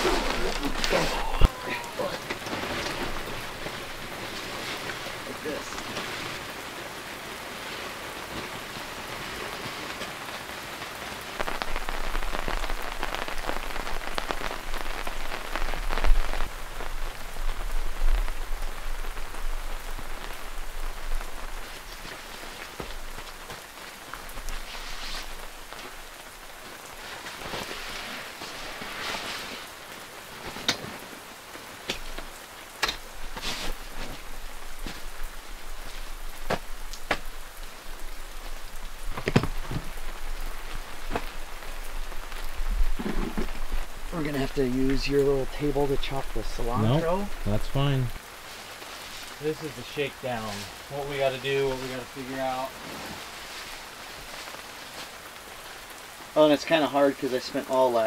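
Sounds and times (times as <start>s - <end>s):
rain pattering on tent: 0.0s - 58.0s.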